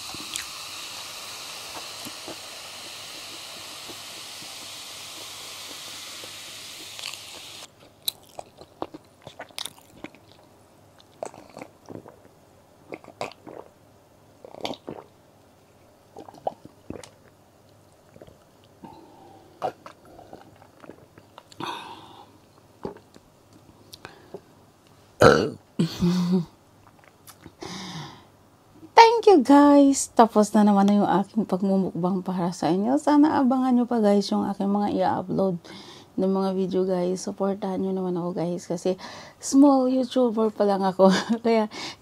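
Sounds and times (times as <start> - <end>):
soda fizzing into glass: 0.0 - 7.7
drinking gulps: 14.4 - 15.1, 16.1 - 17.4, 18.1 - 23.2
loud burp: 25.2 - 25.6.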